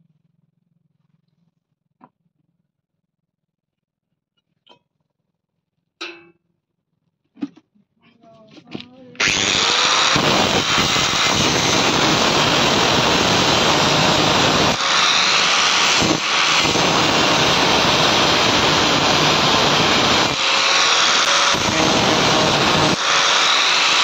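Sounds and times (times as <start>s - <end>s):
angle grinder whirring: 9.2s - 24.0s.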